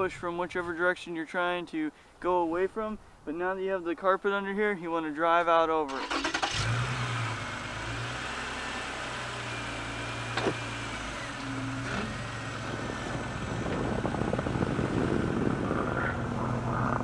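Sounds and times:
car engine idling: 6.0s - 17.0s
rumble of tires and engine: 6.0s - 17.0s.

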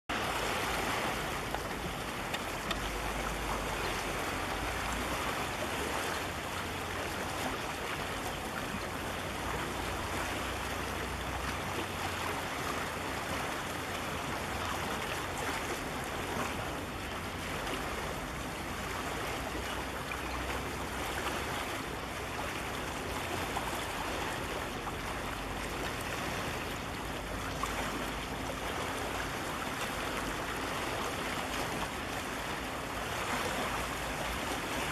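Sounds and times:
wind: 0.0s - 34.9s
sea water washing against rocks: 0.1s - 34.9s.

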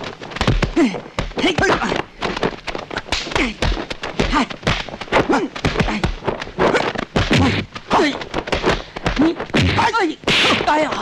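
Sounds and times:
sharp hits and thuds: 0.0s - 11.0s.

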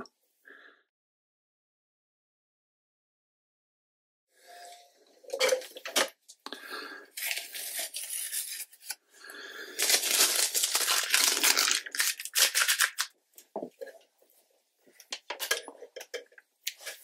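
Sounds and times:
masking tape ripping off paper: 9.8s - 13.1s.

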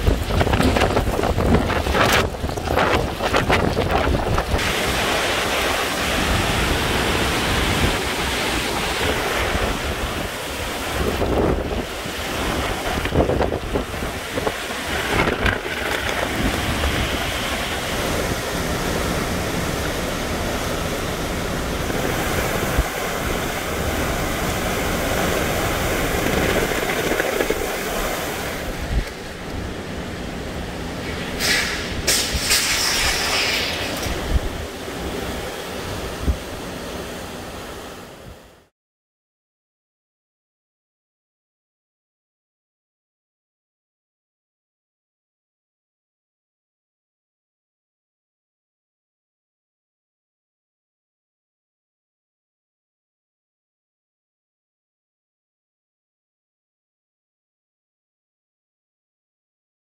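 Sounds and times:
wind gusts buffeting microphone: 0.0s - 36.9s
storm wind and rain: 0.0s - 38.7s.

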